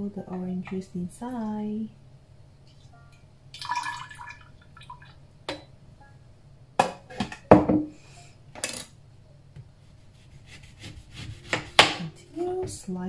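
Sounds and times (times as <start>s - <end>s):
juice pouring into glass jar: 3.6s - 5.1s.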